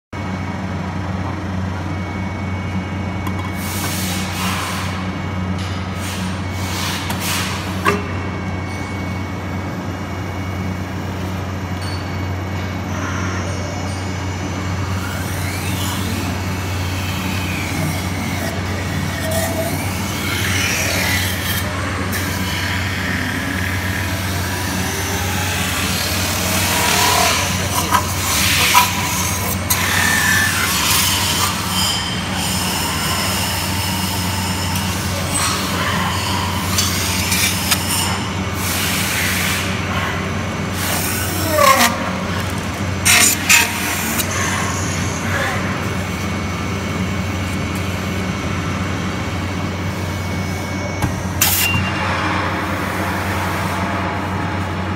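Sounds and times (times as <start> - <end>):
metal spinning lathe humming: 7.8 - 54.9
roller squealing on metal: 12.9 - 38.4.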